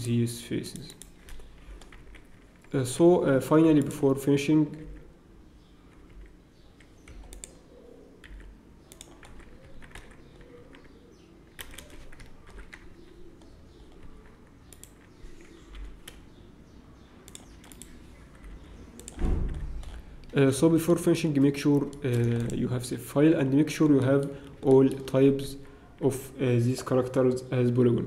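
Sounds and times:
keyboard keys clicking: 5.9s - 7.6s, 8.2s - 16.2s, 17.2s - 20.4s.

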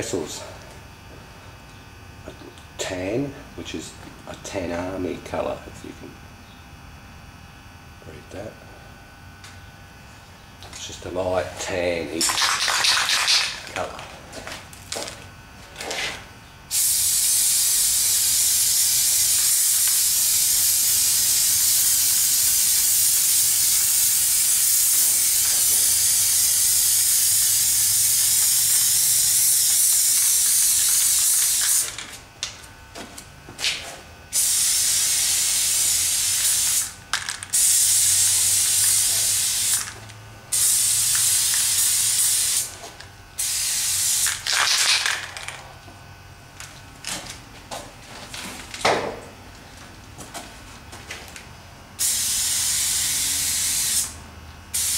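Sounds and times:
spray paint hissing: 12.3s - 13.7s, 16.7s - 32.2s, 34.3s - 45.6s, 52.0s - 54.9s.

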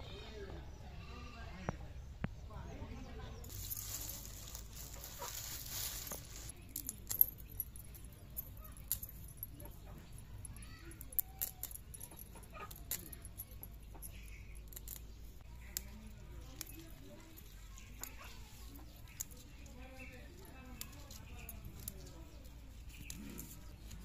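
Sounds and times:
plastic bag crinkling: 3.5s - 9.4s.

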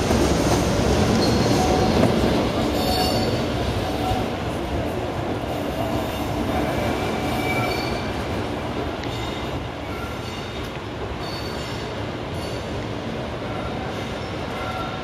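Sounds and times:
locomotives rumbling over rails: 0.0s - 15.0s
high wheel squeals: 7.3s - 8.2s.

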